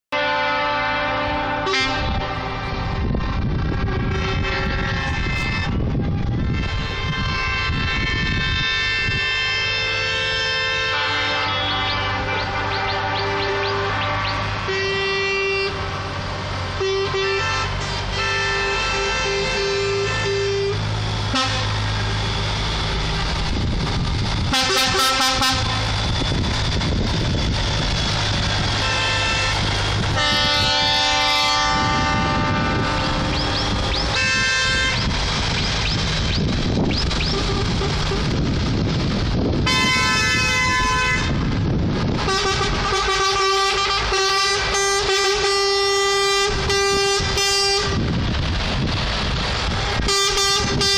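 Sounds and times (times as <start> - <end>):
truck air horns: 0.1 - 22.8, 24.2 - 26.8, 27.4 - 48.2, 49.7 - 50.9
low rumble: 1.3 - 9.3, 18.9 - 43.2, 46.4 - 50.9.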